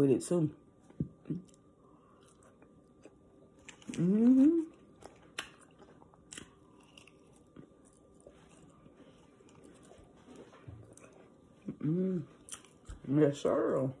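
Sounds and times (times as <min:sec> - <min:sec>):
chewing with mouth clicks: 0:01.2 - 0:13.1
person humming mmm: 0:03.9 - 0:04.8, 0:11.6 - 0:12.4.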